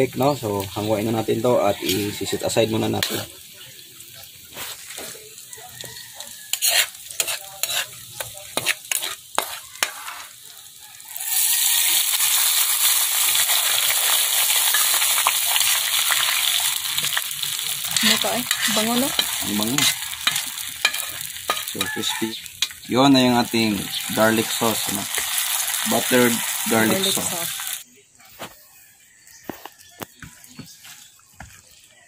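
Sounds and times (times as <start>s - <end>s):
faint sizzling: 0.0s - 28.6s
hot butter hissing and fizzing: 0.1s - 27.8s
metal ladle scraping a wok: 6.5s - 10.4s, 14.5s - 27.8s.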